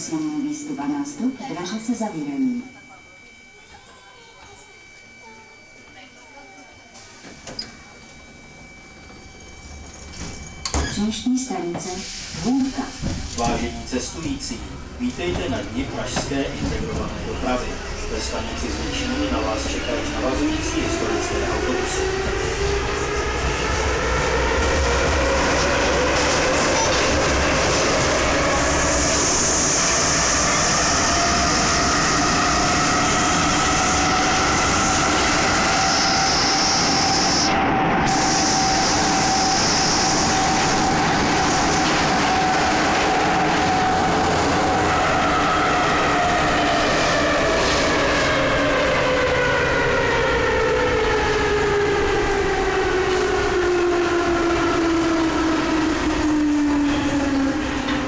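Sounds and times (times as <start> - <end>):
wheel and tunnel rumble: 19.6 - 58.0.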